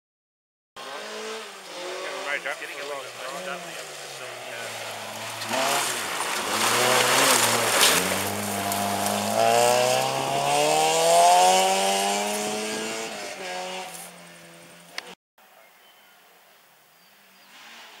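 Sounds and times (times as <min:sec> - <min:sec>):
rally car engine at high revs: 0:00.8 - 0:15.2
gravel spraying under tyres: 0:01.5 - 0:10.6, 0:17.4 - 0:18.0.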